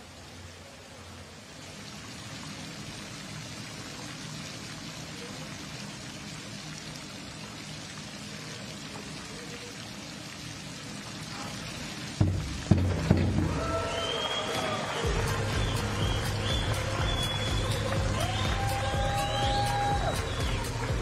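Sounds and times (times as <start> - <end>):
water spraying onto pool surface: 0.0 - 21.0
sudden loud knock: 12.2 - 13.6.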